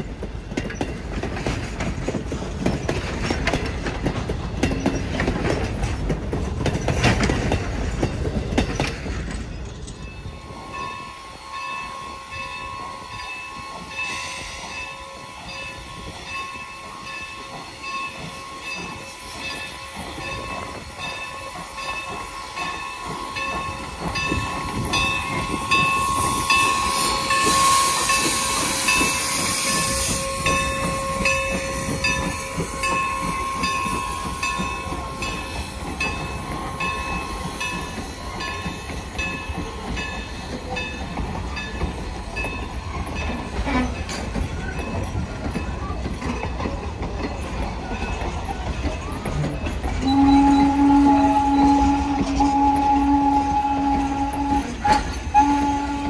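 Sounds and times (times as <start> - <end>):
steam train wheels clattering: 0.0 - 56.0
steam hissing: 10.2 - 56.0.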